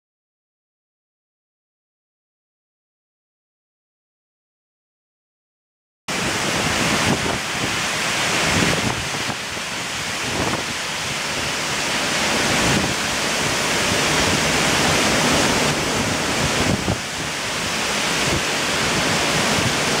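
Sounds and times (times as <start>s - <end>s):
wind buffeting microphone: 6.1s - 20.0s
wind thrashing leaves and branches: 6.1s - 20.0s.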